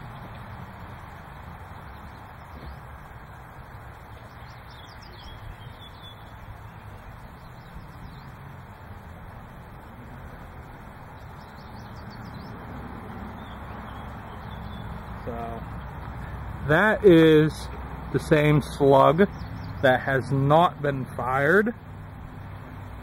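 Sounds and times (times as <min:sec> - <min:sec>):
low background rumble and hiss: 0:00.0 - 0:23.0
bird chirps: 0:01.8 - 0:03.1, 0:04.0 - 0:08.5, 0:11.0 - 0:16.8, 0:17.5 - 0:21.6.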